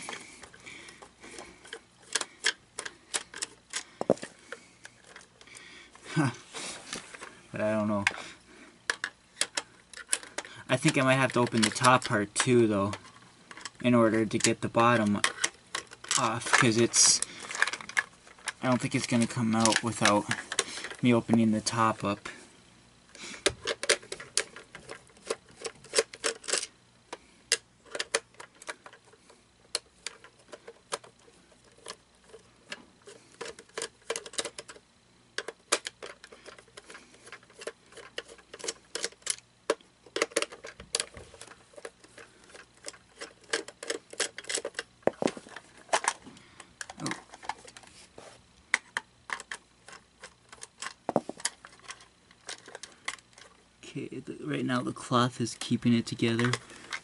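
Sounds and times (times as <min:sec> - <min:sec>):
screwdriver clicking and scraping: 0:00.0 - 0:05.5
plastic knock: 0:51.1 - 0:51.3.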